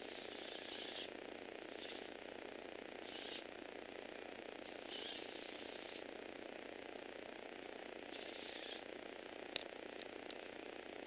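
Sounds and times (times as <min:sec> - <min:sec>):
small electric motor gear rattle: 0:00.0 - 0:03.6, 0:04.6 - 0:06.3, 0:08.0 - 0:10.6.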